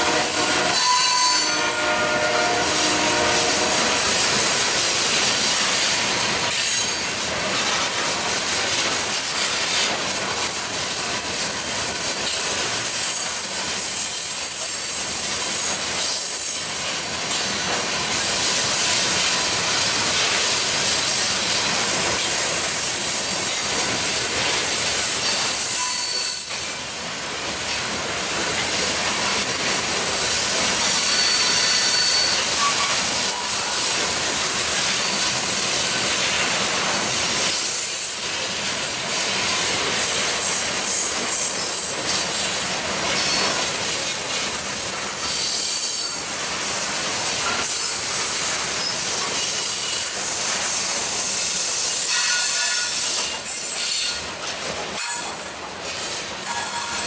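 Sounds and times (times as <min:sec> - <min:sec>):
freight train cars rolling: 0:00.0 - 0:57.0
high-pitched wheel squeals: 0:00.7 - 0:02.3, 0:25.2 - 0:26.6, 0:31.0 - 0:33.6, 0:45.2 - 0:46.3.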